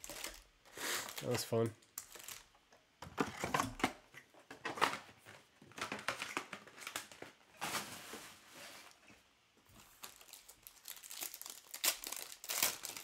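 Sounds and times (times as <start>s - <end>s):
card pack wrappers crinkling: 0.0s - 2.6s, 9.8s - 13.0s.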